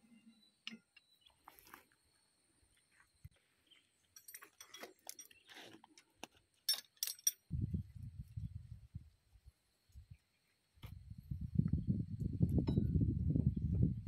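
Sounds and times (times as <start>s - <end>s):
metal gears clinking: 6.7s - 7.5s.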